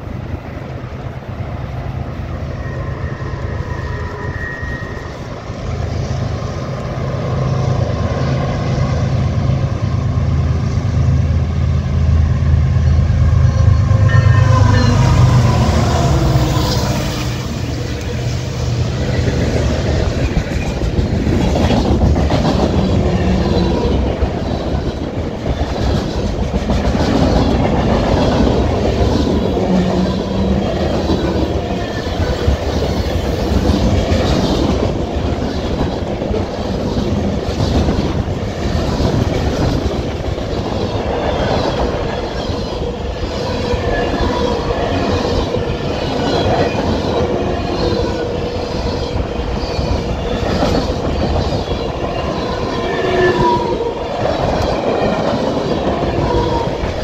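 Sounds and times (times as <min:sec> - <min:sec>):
freight train rumble: 0:00.0 - 0:57.0
thin wheel squeal: 0:02.4 - 0:05.6.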